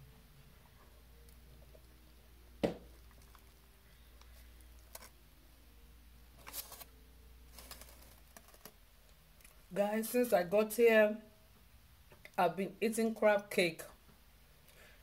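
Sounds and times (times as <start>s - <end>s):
soft crinkling and rustling: 2.9s - 5.2s, 6.4s - 9.7s
plastic fork in foil tray: 4.2s - 5.2s, 6.4s - 6.9s, 7.5s - 8.8s.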